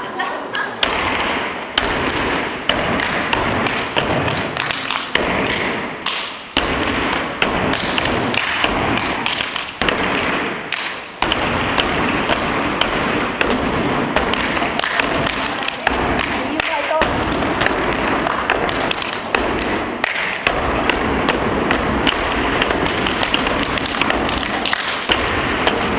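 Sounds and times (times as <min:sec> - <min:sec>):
hand claps and slaps: 0:00.8 - 0:25.9
shoes stomping on stage: 0:11.2 - 0:25.9.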